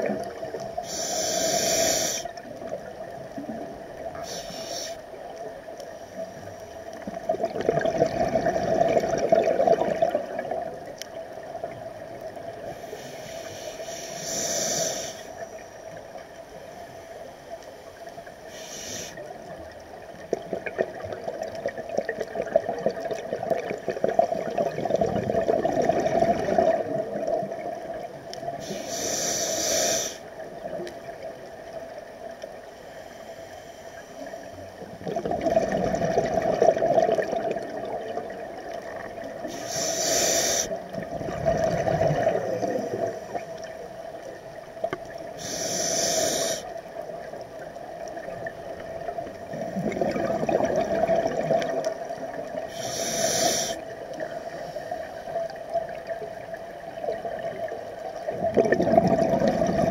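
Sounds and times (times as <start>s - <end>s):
regulator hissing inhalations: 0.8s - 2.4s, 4.2s - 5.2s, 12.7s - 15.8s, 18.4s - 19.3s, 28.6s - 30.3s, 39.4s - 40.8s, 45.4s - 46.8s, 52.7s - 55.0s
exhaled bubbles rushing: 7.0s - 10.9s, 20.3s - 28.0s, 35.0s - 39.3s, 40.9s - 43.7s, 48.0s - 52.6s, 57.1s - 59.9s.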